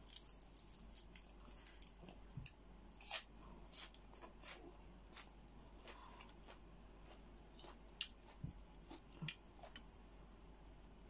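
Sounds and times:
chewing and crunching: 3.0 - 9.9.

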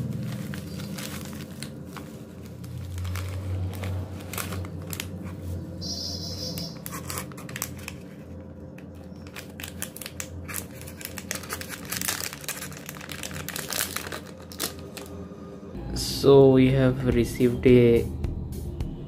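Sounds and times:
plastic packaging crinkling: 0.0 - 5.8, 6.6 - 15.2.

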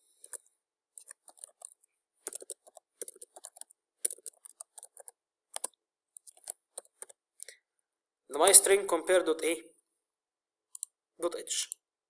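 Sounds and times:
keyboard typing: 0.2 - 7.2, 10.7 - 11.0.

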